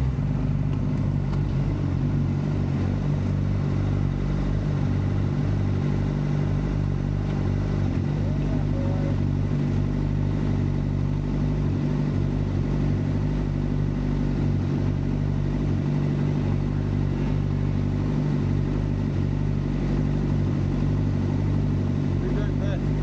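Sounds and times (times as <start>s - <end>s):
motorcycle engine idling: 0.0s - 23.0s.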